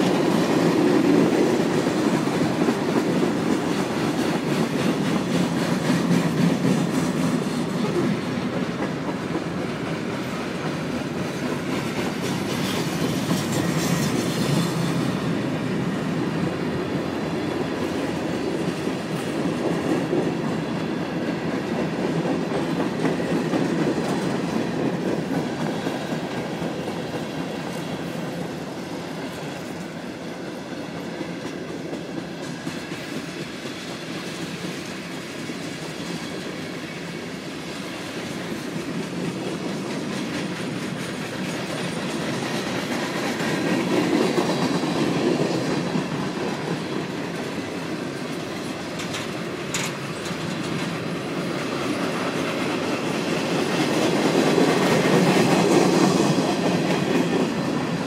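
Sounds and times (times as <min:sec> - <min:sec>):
clatter over rail joints: 0:00.0 - 0:15.3, 0:38.2 - 0:58.0
train wheels rumbling on rails: 0:00.0 - 0:58.0.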